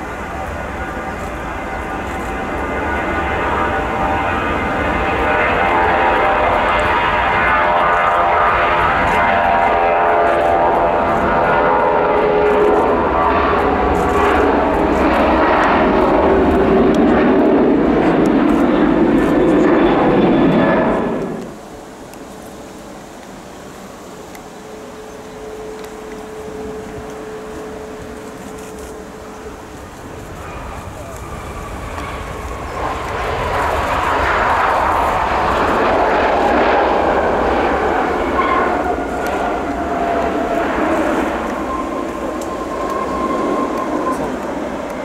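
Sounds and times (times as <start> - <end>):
jet engines roaring at takeoff: 0.0 - 45.0
faint falling whine: 24.5 - 45.0.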